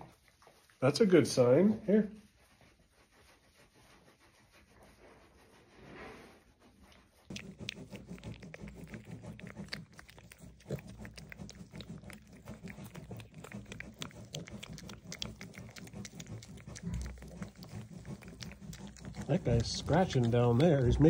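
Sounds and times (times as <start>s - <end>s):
piglets snuffling and chewing: 0.0s - 21.0s
straw rustling: 7.3s - 21.0s.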